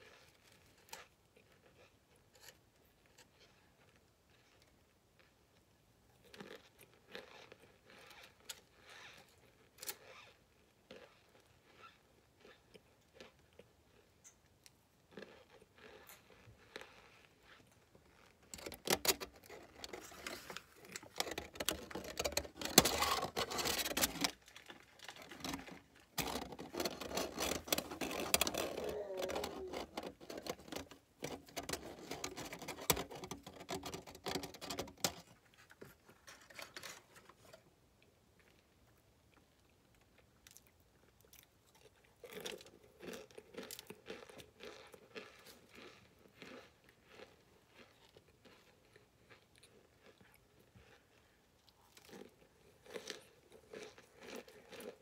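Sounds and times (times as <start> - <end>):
aluminium foil crinkling: 18.4 - 37.6
cornstarch chunk being chewed: 39.3 - 55.0.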